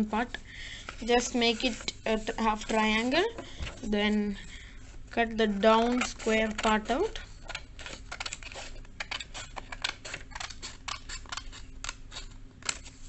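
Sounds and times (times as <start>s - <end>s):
scissors snipping paper: 5.6s - 13.0s.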